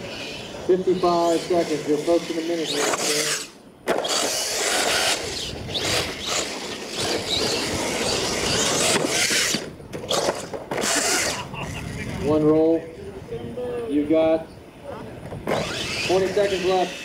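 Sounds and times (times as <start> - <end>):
toy truck motor whining: 0.0 - 12.0, 15.5 - 17.0.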